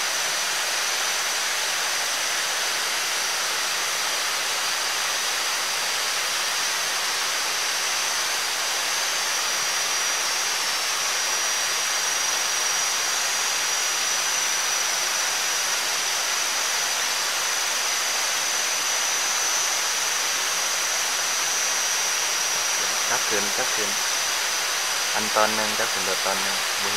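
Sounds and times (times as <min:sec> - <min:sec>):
thin high steady whine: 0:00.0 - 0:26.9
rushing hiss: 0:18.6 - 0:26.9.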